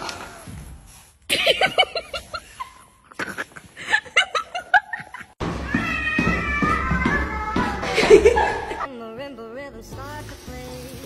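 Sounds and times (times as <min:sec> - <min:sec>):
laughter: 0:01.3 - 0:05.4, 0:07.8 - 0:08.9
music: 0:08.9 - 0:11.0.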